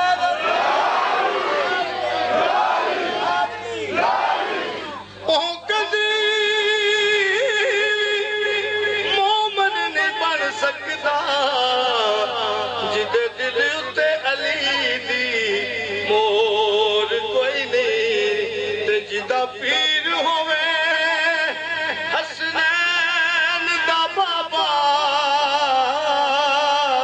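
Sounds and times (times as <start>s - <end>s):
crowd shout: 0.0s - 5.1s
man singing into microphone: 5.3s - 27.0s.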